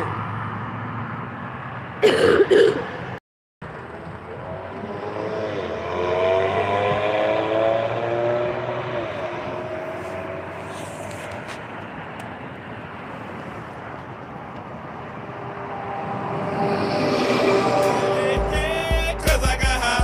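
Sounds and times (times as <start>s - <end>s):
vehicle engine driving past: 14.7s - 19.4s.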